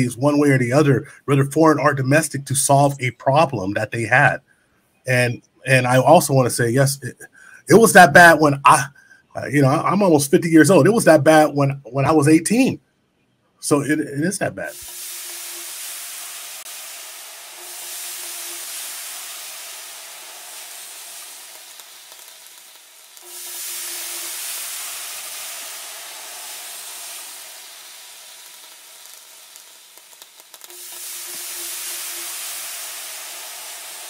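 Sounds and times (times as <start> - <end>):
hissing white noise: 0.0 - 4.2, 13.6 - 34.0.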